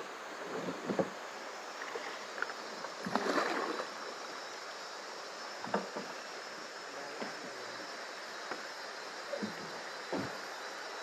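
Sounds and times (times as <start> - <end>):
river water rushing along canoe hull: 0.0 - 11.0
water splash: 3.0 - 4.0.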